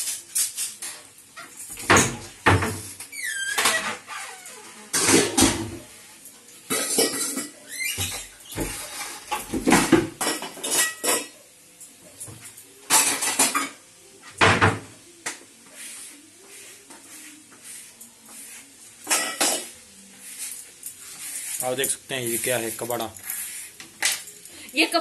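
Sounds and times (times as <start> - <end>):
pots and dishes clattering: 0.0 - 4.1, 4.7 - 6.0, 6.6 - 14.9, 19.0 - 19.8.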